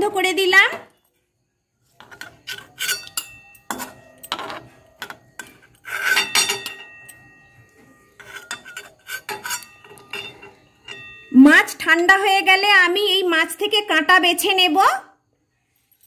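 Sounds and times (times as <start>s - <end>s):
metal clinks: 2.1s - 11.8s.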